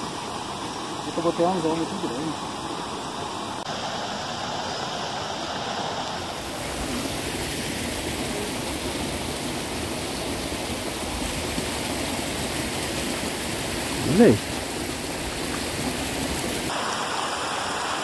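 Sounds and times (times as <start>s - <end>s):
running water rushing: 0.0s - 18.0s.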